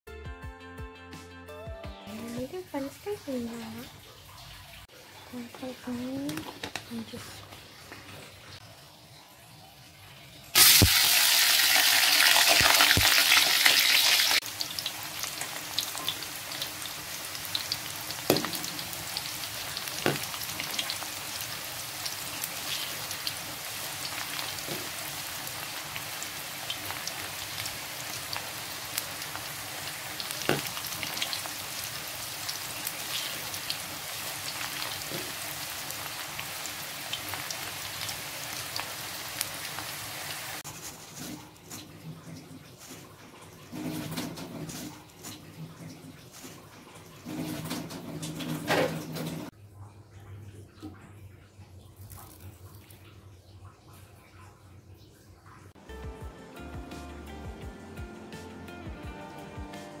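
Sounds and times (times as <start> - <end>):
potato strips deep-frying in oil: 2.1 - 49.6.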